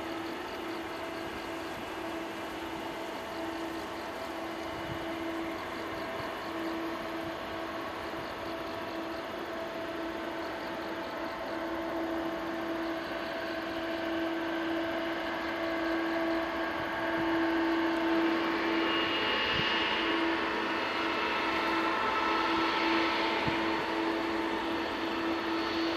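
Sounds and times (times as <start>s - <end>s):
higher jet whine: 0.0s - 25.9s
jet engines humming and whining: 0.0s - 25.9s.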